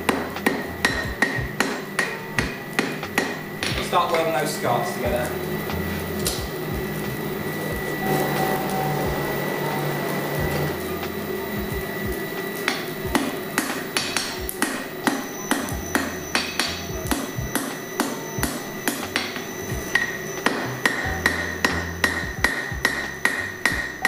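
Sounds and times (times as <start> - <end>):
hammer ringing on anvil: 0.0 - 5.3, 12.6 - 24.0
coal forge rushing: 0.0 - 24.0.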